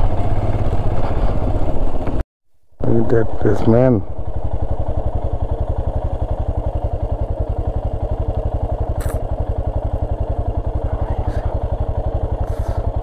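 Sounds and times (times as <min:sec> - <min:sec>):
motorcycle engine running: 0:00.0 - 0:02.2, 0:02.8 - 0:13.0
brief hiss: 0:09.0 - 0:09.2.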